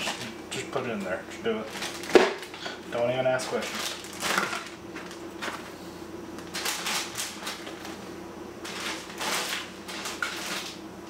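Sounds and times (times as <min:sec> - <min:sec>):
plastic bags crinkling: 0:01.6 - 0:08.0, 0:08.6 - 0:10.8.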